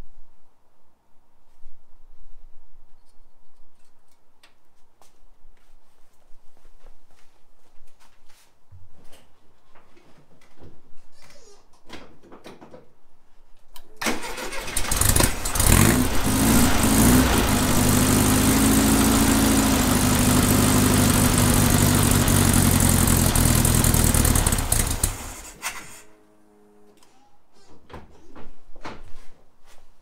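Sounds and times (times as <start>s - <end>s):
car engine cranking and idling: 14.0s - 25.6s.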